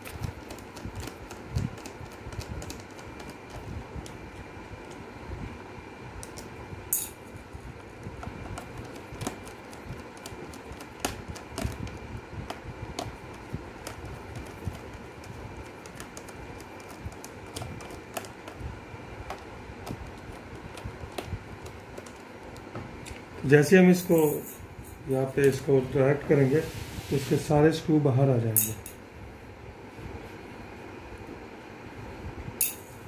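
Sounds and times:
screwdriver clicking on plastic: 0:00.0 - 0:04.2, 0:08.2 - 0:18.6, 0:19.2 - 0:22.7.

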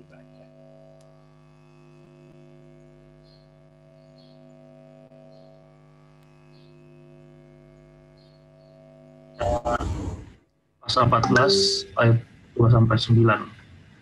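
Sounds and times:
electrical mains hum: 0:00.0 - 0:14.0
faint high chirps: 0:11.2 - 0:12.0.

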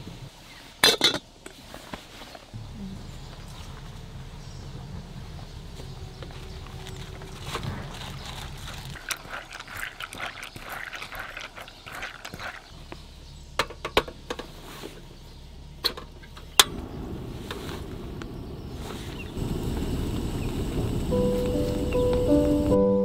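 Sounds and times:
cooking gear rustling and clattering: 0:05.5 - 0:15.2.

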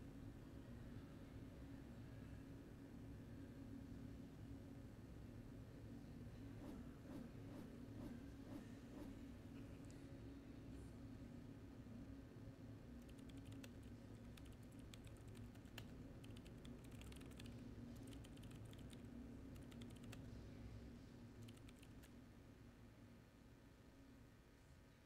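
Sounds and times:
low steady hum: 0:00.0 - 0:25.0
laptop keyboard typing: 0:13.0 - 0:20.2, 0:21.4 - 0:22.1.

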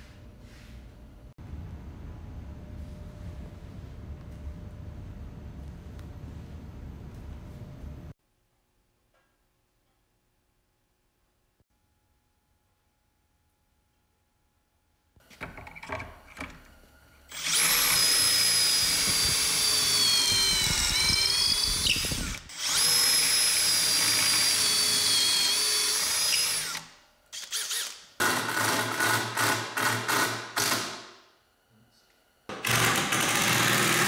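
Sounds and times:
cordless drill whining: 0:17.3 - 0:28.0
impact driver driving screws: 0:32.5 - 0:34.0.

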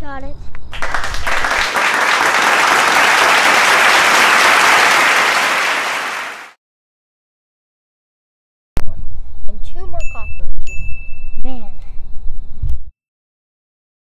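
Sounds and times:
applause: 0:00.7 - 0:06.6.

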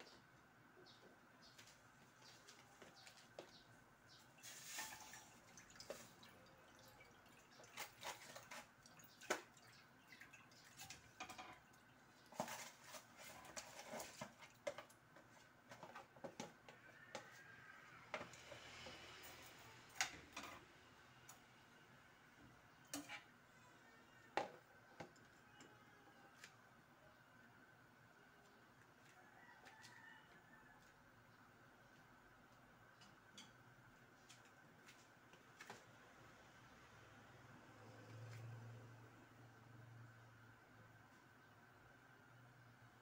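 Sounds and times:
liquid dripping and splashing: 0:04.5 - 0:12.1.

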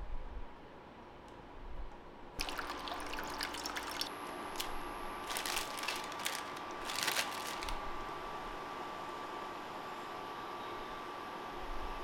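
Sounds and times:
water pouring into metal pan: 0:02.4 - 0:04.1.

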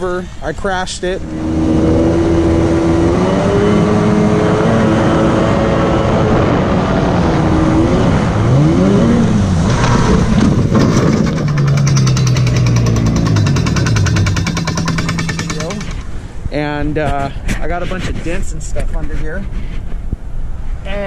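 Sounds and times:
boat jet engine running: 0:00.7 - 0:16.3
fast even rattle: 0:10.4 - 0:16.2.

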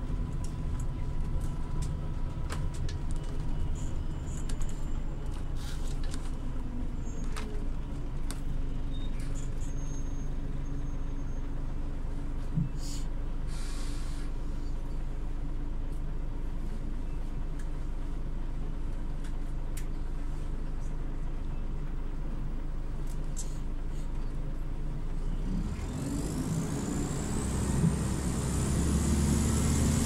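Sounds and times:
bus engine low hum: 0:00.0 - 0:30.0
hiss of air: 0:12.8 - 0:14.3.

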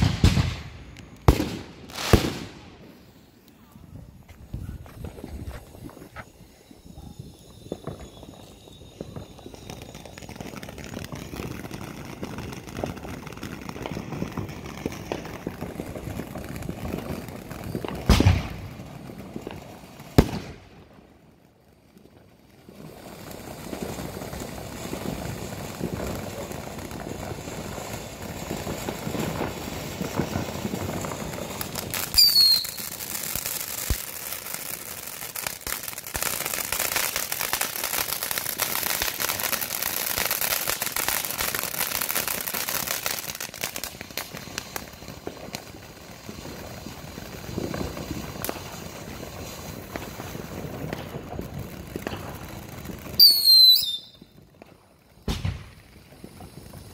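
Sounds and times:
firework fountain hissing and crackling: 0:00.0 - 0:56.9
falling whistle: 0:06.0 - 0:10.3, 0:32.1 - 0:32.9, 0:53.2 - 0:54.2.

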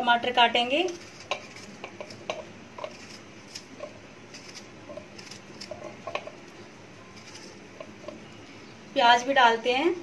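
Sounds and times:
knife cutting tomato: 0:00.8 - 0:06.4.

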